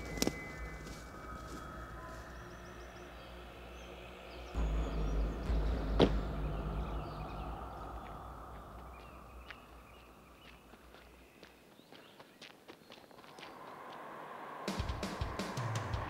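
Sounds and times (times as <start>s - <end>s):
deep rumble: 0.0s - 11.3s
sharp boom hit: 4.6s - 10.4s.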